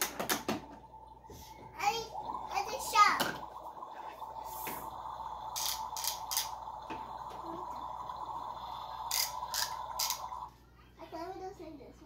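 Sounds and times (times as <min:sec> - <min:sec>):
toy speaker hum: 0:01.8 - 0:10.6.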